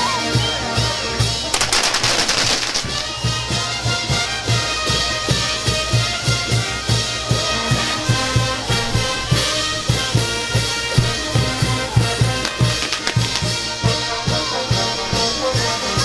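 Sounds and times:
trumpets holding notes: 0.0s - 16.0s
bass drum beat: 1.4s - 14.6s.

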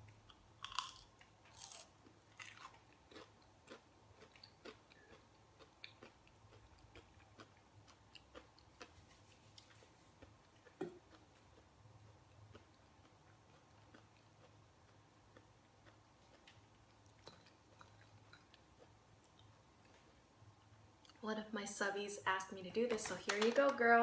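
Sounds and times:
person crunching fried snack: 0.6s - 9.0s.

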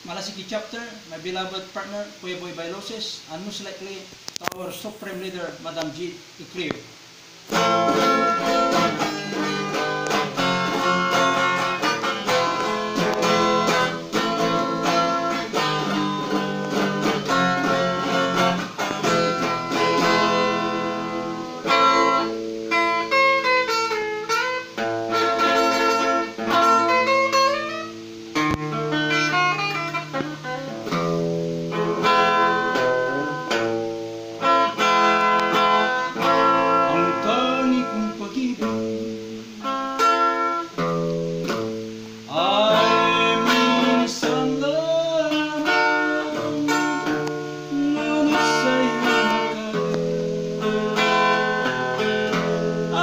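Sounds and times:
electric guitar solo: 6.5s - 53.0s.

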